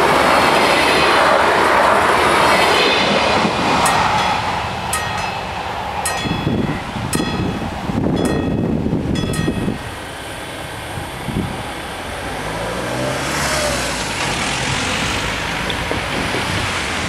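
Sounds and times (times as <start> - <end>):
traffic rushing: 0.0 - 17.0
level-crossing bell ringing: 3.8 - 9.9
vehicle engine revving: 12.2 - 16.7.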